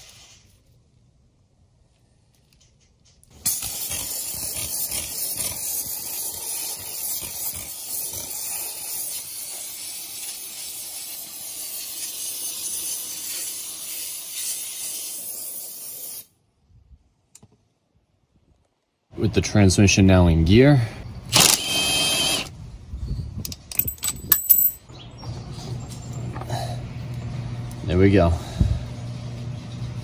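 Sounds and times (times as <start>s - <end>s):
steam cleaner hissing: 3.4s - 16.3s.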